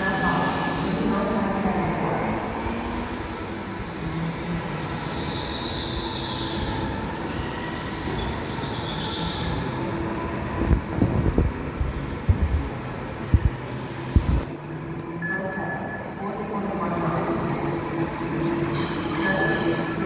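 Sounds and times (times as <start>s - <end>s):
go-kart engines humming: 16.9s - 20.0s.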